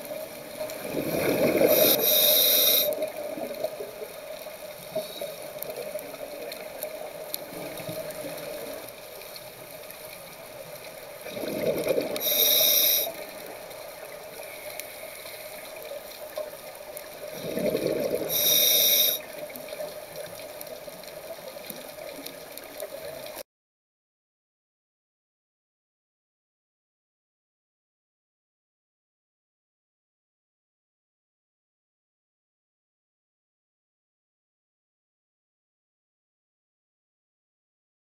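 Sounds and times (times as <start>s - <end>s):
diver exhaling bubbles underwater: 0.7s - 3.6s, 11.2s - 13.0s, 17.3s - 19.1s.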